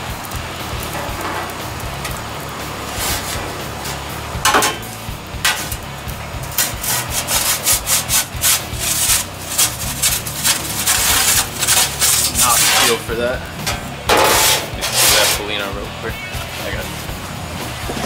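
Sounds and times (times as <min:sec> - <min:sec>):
pizza peel scraping stone: 0:02.9 - 0:04.0, 0:06.4 - 0:13.0, 0:14.1 - 0:15.5.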